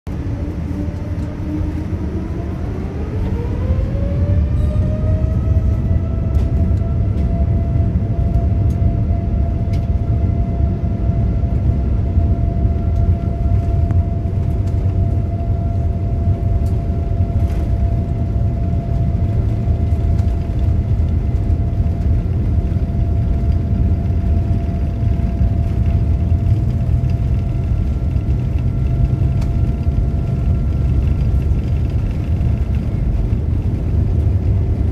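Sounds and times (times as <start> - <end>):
heavy rumble of takeoff roll: 0.1 - 34.9
jet engines whining: 0.1 - 34.9.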